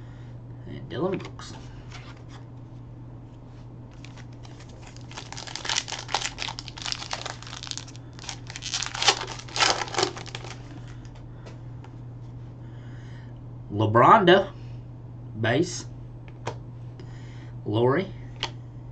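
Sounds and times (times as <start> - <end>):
foil wrapper crinkling: 4.0 - 11.2.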